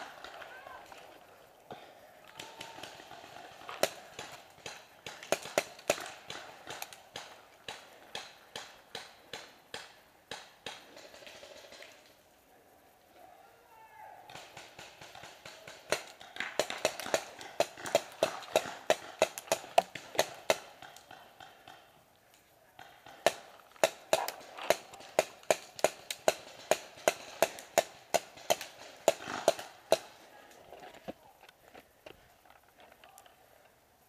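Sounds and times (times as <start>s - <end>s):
paintball marker firing rapid shots: 2.4s - 11.8s, 14.3s - 21.9s, 22.8s - 30.3s.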